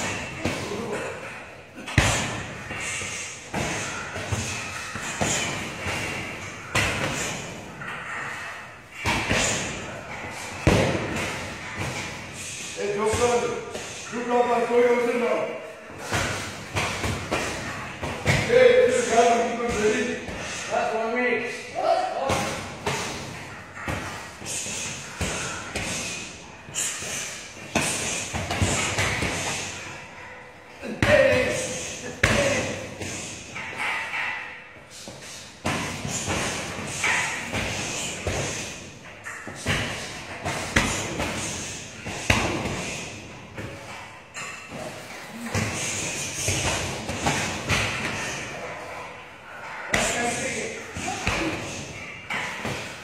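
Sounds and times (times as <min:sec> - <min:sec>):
punching bag thuds echoing: 0:01.8 - 0:07.6, 0:10.5 - 0:12.2.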